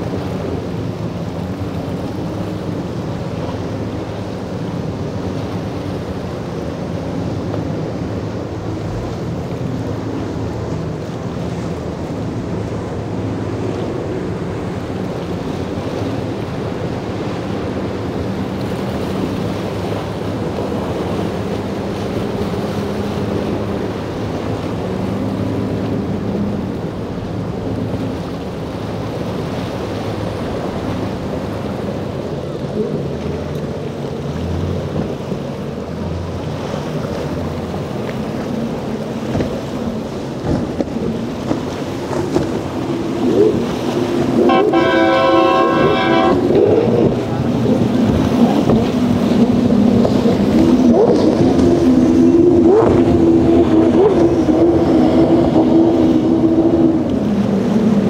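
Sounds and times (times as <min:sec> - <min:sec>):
outboard motors running: 0:00.0 - 0:58.0
waves and spray splashing: 0:00.0 - 0:58.0
wind buffeting microphone: 0:38.3 - 0:58.0.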